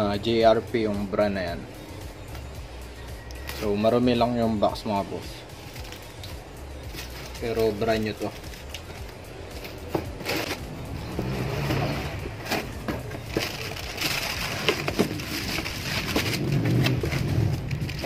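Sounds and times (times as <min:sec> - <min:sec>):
plastic wrapping crinkling: 0:05.6 - 0:10.7, 0:12.4 - 0:18.0.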